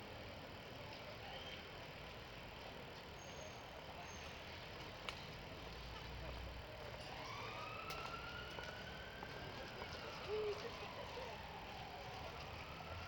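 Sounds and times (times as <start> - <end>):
city traffic hum: 0.0 - 13.0
siren wailing: 7.2 - 13.0.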